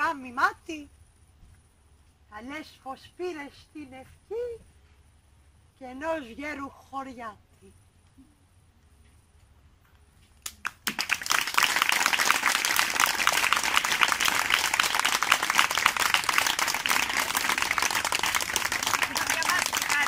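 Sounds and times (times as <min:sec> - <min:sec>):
audience applauding: 0:10.5 - 0:20.0.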